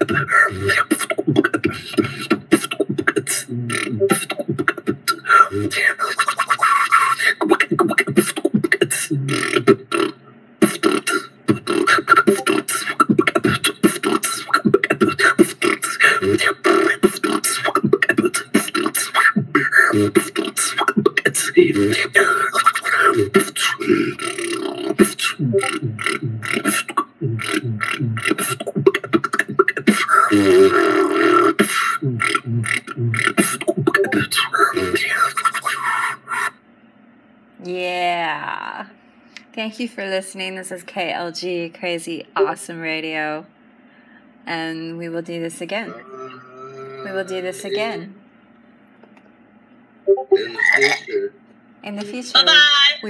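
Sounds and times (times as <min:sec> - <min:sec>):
person beatboxing: 0:00.0 - 0:36.6.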